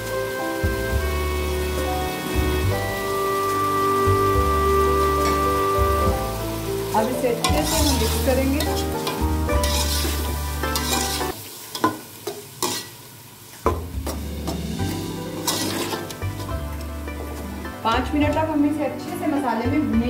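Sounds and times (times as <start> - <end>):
food sizzling in oil: 0.0 - 20.0
metal spoon scraping a pot: 7.5 - 11.9, 12.6 - 12.9, 14.8 - 16.5.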